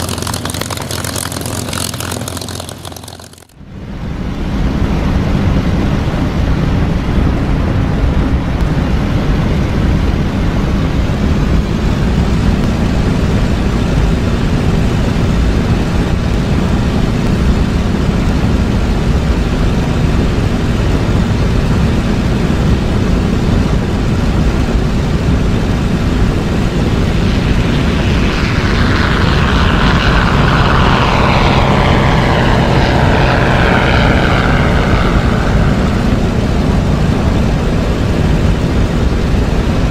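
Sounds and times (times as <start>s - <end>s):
propeller aircraft engine drone: 0.0s - 39.9s.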